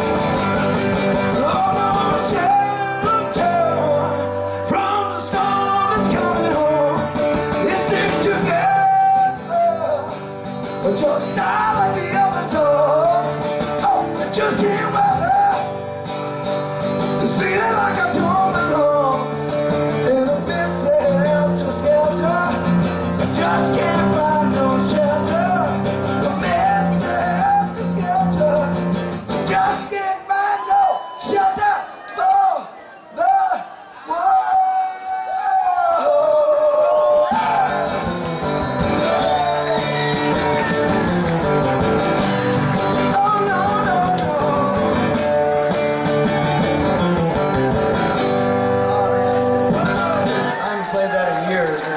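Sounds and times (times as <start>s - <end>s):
acoustic guitar strumming: 0.0s - 30.0s, 37.3s - 50.5s
man singing: 1.1s - 15.9s, 17.0s - 38.2s, 42.7s - 45.8s.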